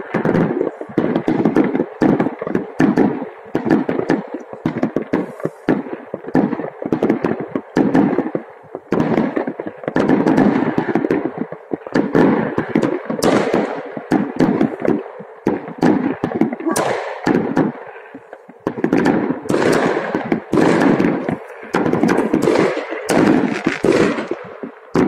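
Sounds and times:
fireworks bangs and crackles: 0.0 - 25.0
loud sharp firework bang: 18.6 - 25.0.

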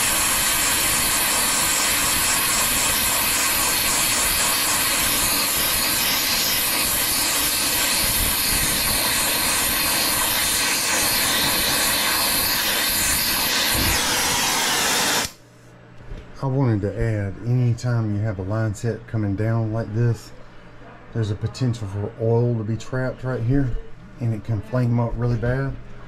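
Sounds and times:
torch flame hissing: 0.0 - 15.4.

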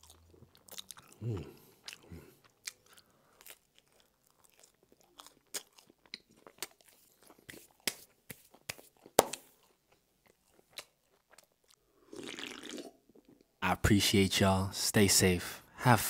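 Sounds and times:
chewing crunchy crust: 0.0 - 11.8.

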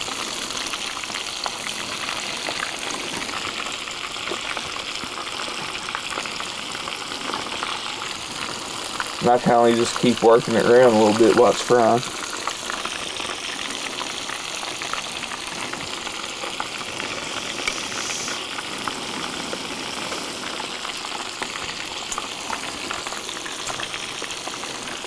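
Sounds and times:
oil sizzling in deep fryer: 0.0 - 25.0.

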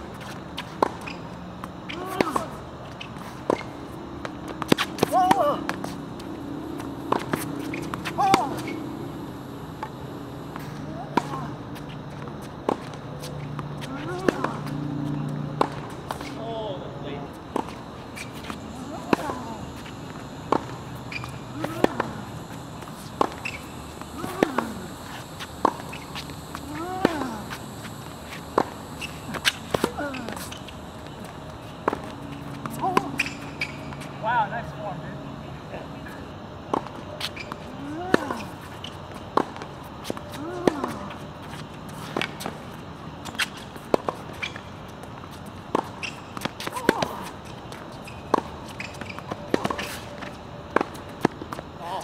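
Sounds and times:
racquets striking tennis ball: 0.2 - 34.1, 36.7 - 51.7
shoe squeak: 0.2 - 34.3, 37.0 - 39.3, 40.0 - 52.0
footsteps: 2.8 - 34.3
tennis ball struck by racquet: 12.5 - 16.4, 17.5 - 31.2.

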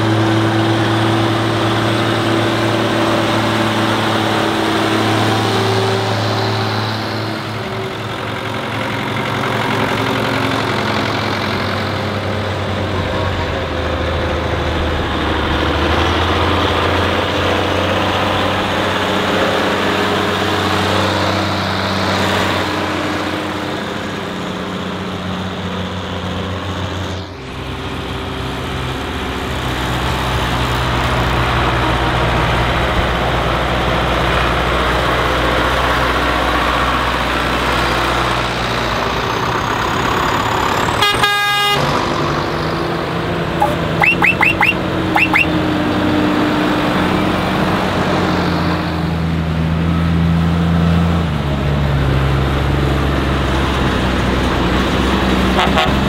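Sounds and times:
tractor diesel engines running: 0.0 - 56.0
short horn blast: 43.6 - 45.5, 55.6 - 56.0.

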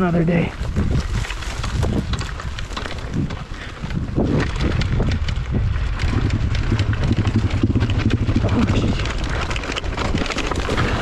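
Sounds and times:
wind buffeting microphone: 0.0 - 11.0
motorbike engine idling roughly: 2.8 - 11.0.

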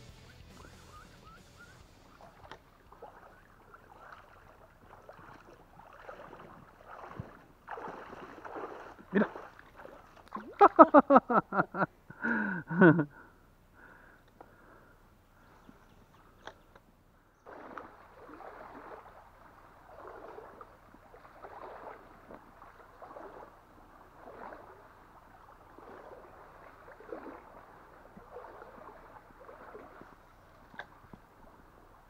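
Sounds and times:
river water sloshing and gurgling: 0.6 - 11.8, 15.3 - 32.0
small splashes: 1.8 - 11.2, 17.4 - 32.0.

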